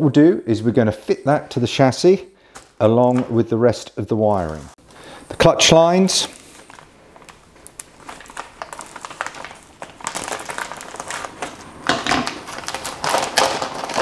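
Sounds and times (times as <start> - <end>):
plastic bag crinkling: 6.0 - 14.0.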